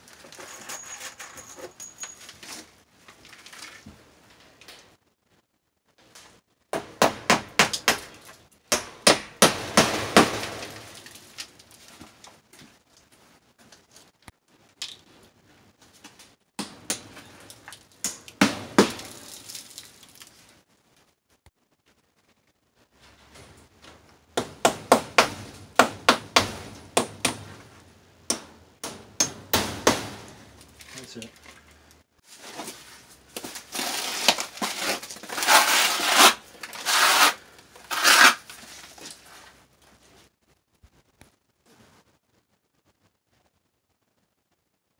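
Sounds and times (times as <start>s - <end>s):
mortar scraped onto metal lath: 33.7s - 39.0s.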